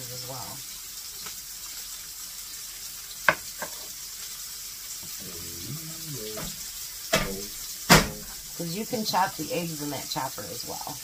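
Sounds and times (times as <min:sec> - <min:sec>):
patties sizzling in a frying pan: 0:00.0 - 0:11.0
sharp knocks: 0:06.4 - 0:08.4.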